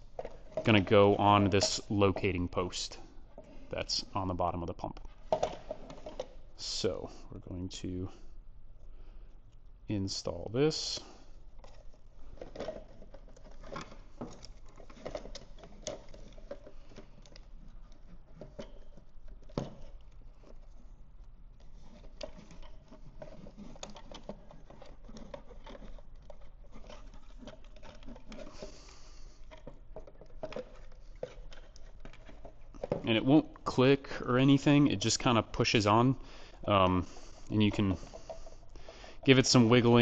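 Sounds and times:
plastic taps scrapes and rustles: 0:11.6 - 0:21.0, 0:21.6 - 0:33.8.

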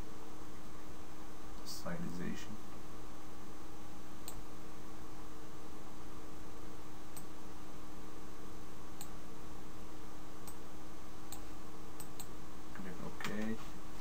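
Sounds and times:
background hiss: 0:00.0 - 0:14.0
faint hum: 0:00.0 - 0:14.0
computer mouse clicking: 0:04.2 - 0:04.4, 0:11.3 - 0:12.3.

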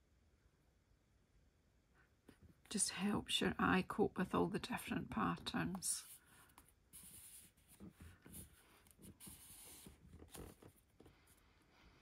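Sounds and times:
paper rustling and sliding: 0:06.0 - 0:11.4.

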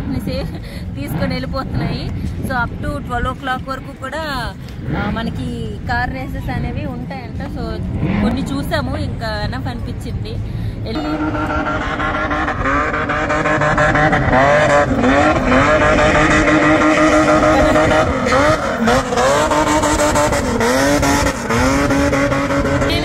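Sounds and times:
car engine revving hard: 0:07.8 - 0:09.0, 0:11.0 - 0:23.0.

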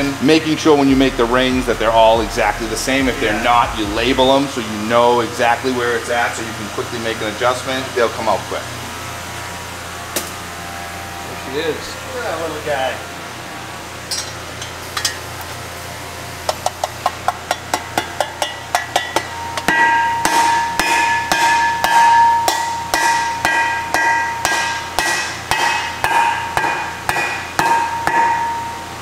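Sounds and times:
metal ringing: 0:14.0 - 0:15.2, 0:17.5 - 0:28.9
hammer tapping metal ring: 0:16.6 - 0:28.7.

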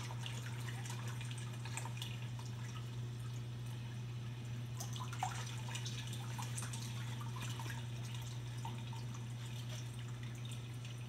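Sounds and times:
steady low hum: 0:00.0 - 0:11.0
water trickling and dripping: 0:00.0 - 0:11.0.

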